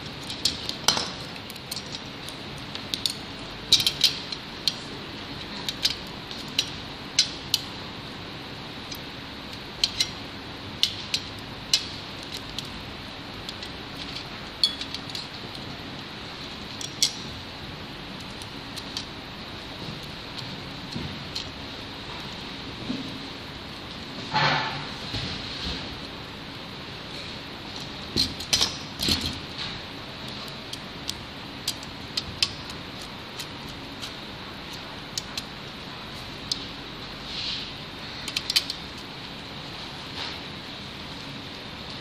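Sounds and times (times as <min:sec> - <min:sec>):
low background hum: 0:00.0 - 0:42.0
small metal parts clinking: 0:00.1 - 0:07.7, 0:09.8 - 0:10.2, 0:13.4 - 0:15.7, 0:16.4 - 0:17.2.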